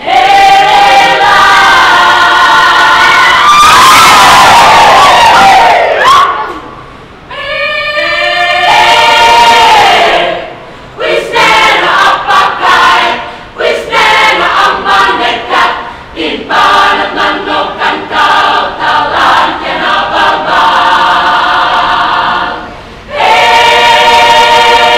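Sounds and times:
choir singing a cappella: 0.0 - 6.0, 7.3 - 24.9.

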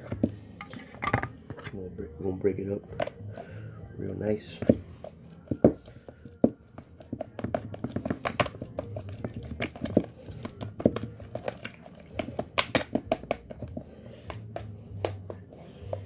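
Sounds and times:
fingertips tapping plastic: 5.5 - 16.0.

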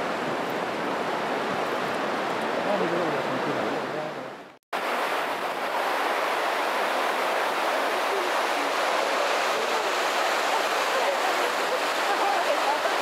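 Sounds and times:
water rushing over stones: 4.8 - 13.0.

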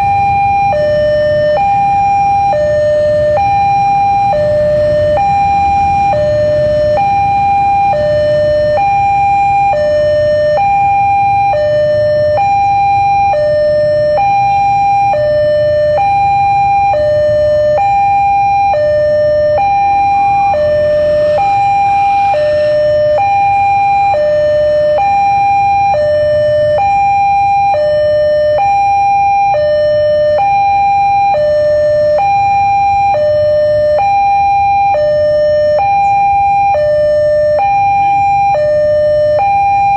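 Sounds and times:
two-tone crossing alarm: 0.0 - 39.9.

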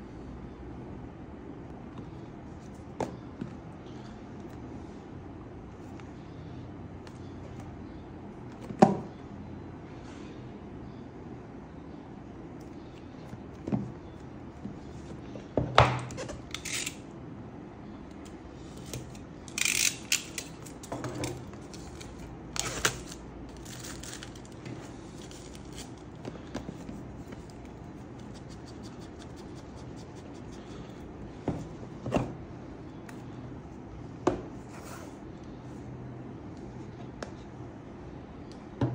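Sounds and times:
low steady hum: 0.0 - 38.9
packaging being handled: 21.4 - 27.9.

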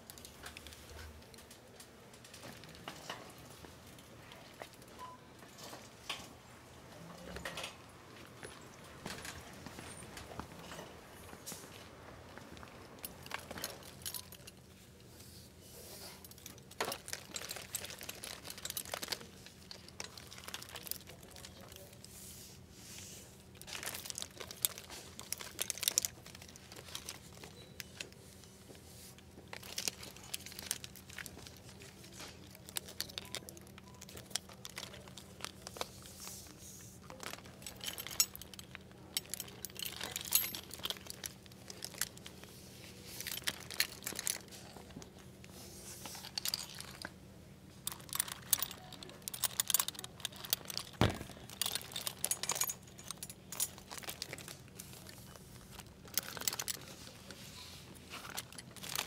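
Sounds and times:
metal buckles jingling: 12.5 - 14.6, 37.1 - 42.3, 47.8 - 55.0
plastic belt hangers clicking: 16.3 - 21.9, 23.6 - 27.5, 47.9 - 56.9.

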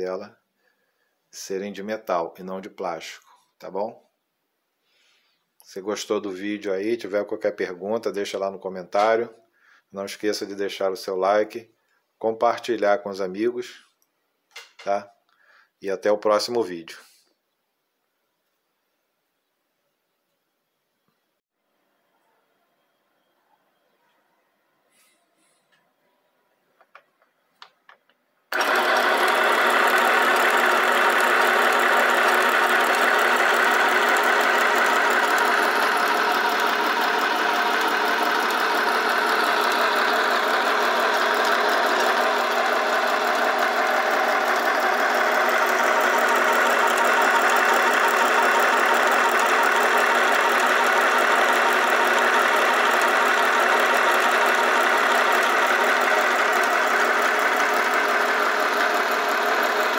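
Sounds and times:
sewing machine motor running: 28.5 - 59.9.

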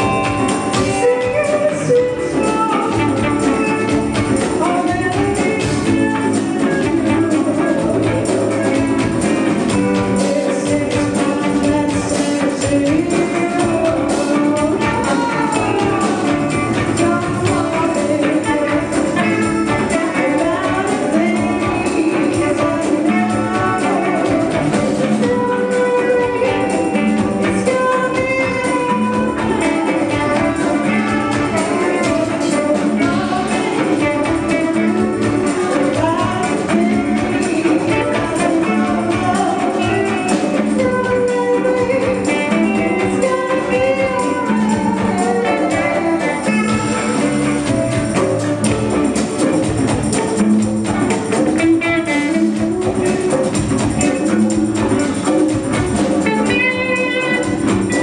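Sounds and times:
drum kit: 0.0 - 58.0
electric guitars: 0.0 - 58.0
hand drums: 0.0 - 58.0
keyboard: 0.0 - 58.0
live band playing reggae: 0.0 - 58.0.

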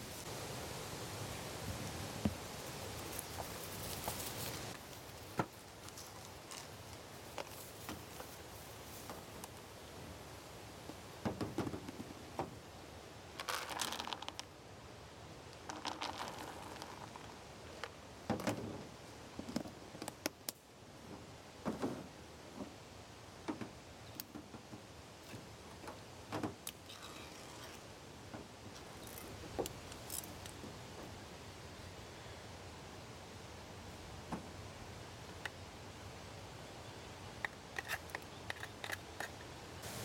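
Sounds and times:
rustling and crinkling: 1.7 - 9.7, 13.3 - 14.5, 15.5 - 20.4.

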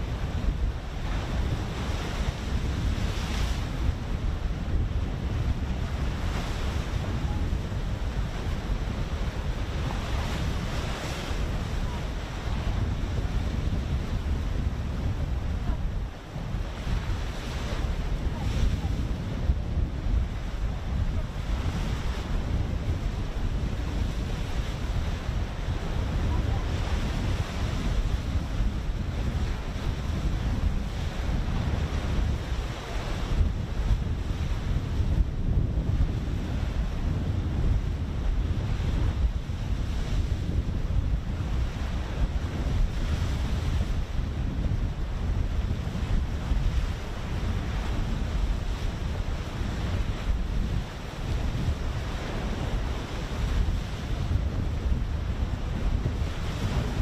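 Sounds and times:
open sea wash: 0.0 - 57.0
wind buffeting microphone: 0.0 - 57.0.

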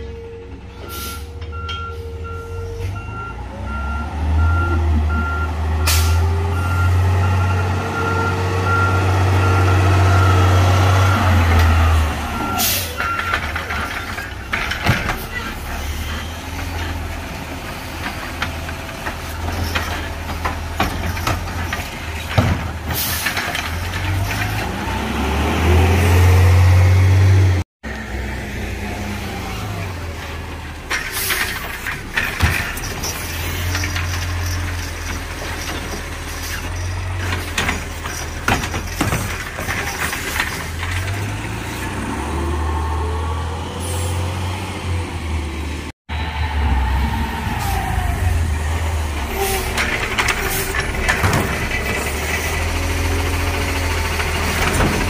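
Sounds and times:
truck backup alarm beeping: 0.0 - 17.0
diesel engine rumbling and revving: 0.0 - 55.0.

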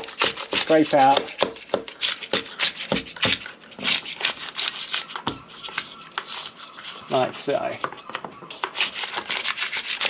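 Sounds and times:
scraping hardened foam: 0.0 - 10.0.

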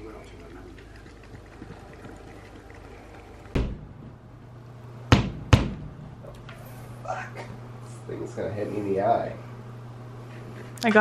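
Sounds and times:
hammer knocking on metal: 5.1 - 6.0.

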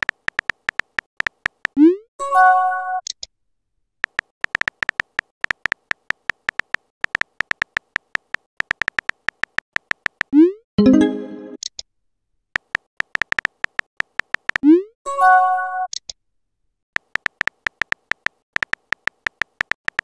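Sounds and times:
soft keyboard clicks: 0.0 - 1.8, 4.0 - 10.3, 12.6 - 14.6, 17.0 - 20.0
bright electronic chime: 10.8 - 11.6.

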